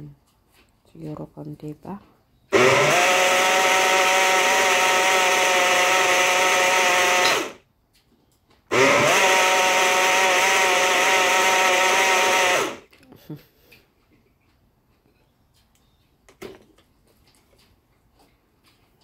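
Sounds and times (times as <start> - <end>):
blender motor running: 2.5 - 7.6, 8.7 - 12.9.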